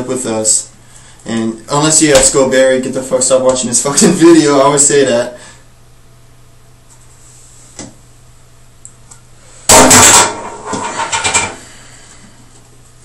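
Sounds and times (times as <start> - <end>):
very loud thump: 9.7 - 11.5.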